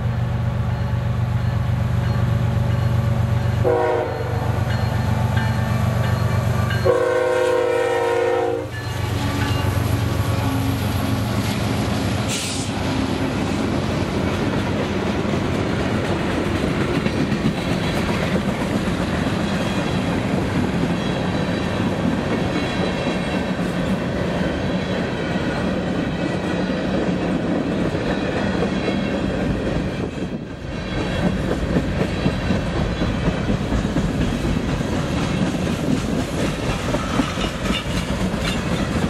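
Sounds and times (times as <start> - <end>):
freight train clattering: 0.7 - 39.0
wheels clacking over rails: 13.2 - 39.0.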